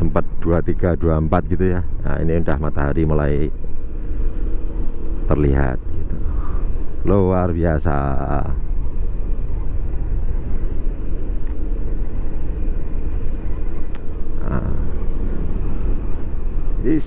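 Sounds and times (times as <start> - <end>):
scooter road noise: 0.0 - 17.0
wind rumble on microphone: 0.0 - 17.0.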